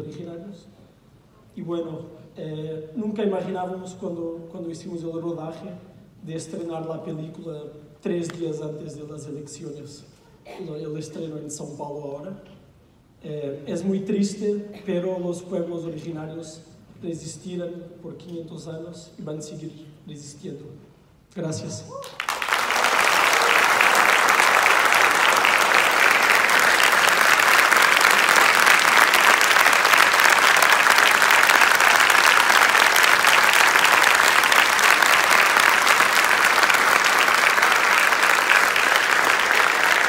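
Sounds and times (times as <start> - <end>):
large audience applauding: 22.0 - 40.0.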